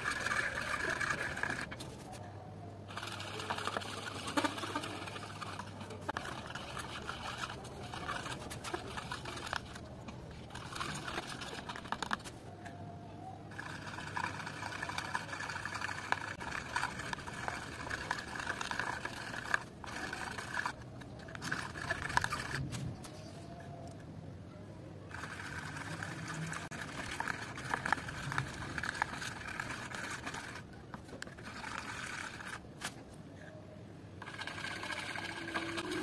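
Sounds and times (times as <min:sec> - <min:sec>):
palette knife squishing wet paint: 0:03.0 - 0:12.5, 0:13.5 - 0:23.5, 0:25.1 - 0:33.0.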